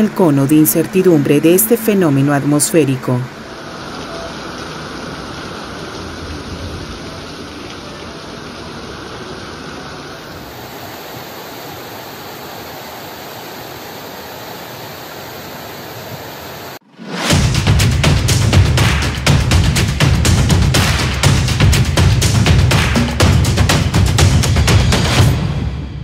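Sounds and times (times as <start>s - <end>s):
heavy rain pouring: 0.0s - 26.0s
loud music with drum beats: 17.2s - 25.9s.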